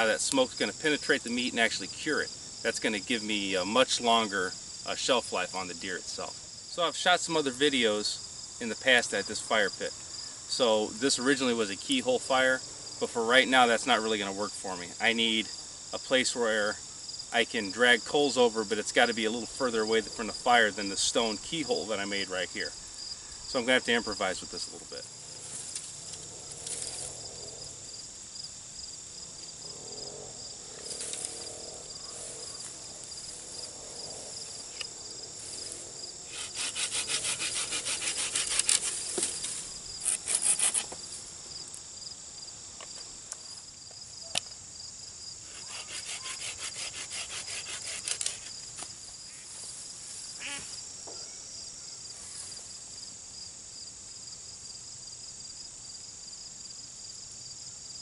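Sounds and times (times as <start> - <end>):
insects trilling: 0.0 - 58.0
hand saw cutting wood: 36.3 - 41.0, 45.5 - 48.6.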